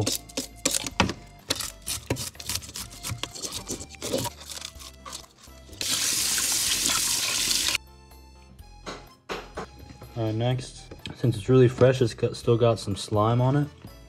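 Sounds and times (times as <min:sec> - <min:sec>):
fish scaler scraping scales: 0:00.0 - 0:07.8
faucet running onto fish: 0:05.8 - 0:07.8.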